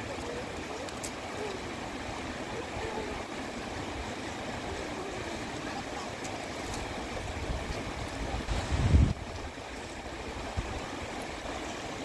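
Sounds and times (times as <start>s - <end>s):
flowing water rushing: 0.0s - 12.0s.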